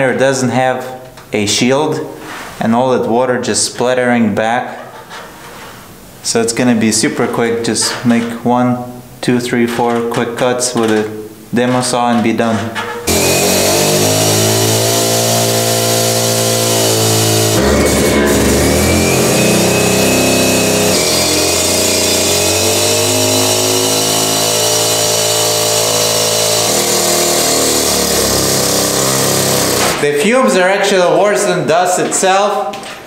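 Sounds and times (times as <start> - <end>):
cut-off saw cutting block: 13.0 - 30.0.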